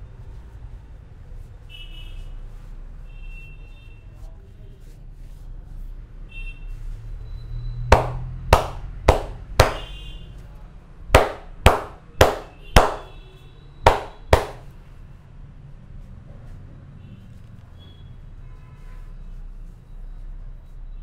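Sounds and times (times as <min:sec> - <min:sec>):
hand slaps on bare back: 0:07.9 - 0:09.9, 0:11.2 - 0:13.1, 0:13.9 - 0:14.6.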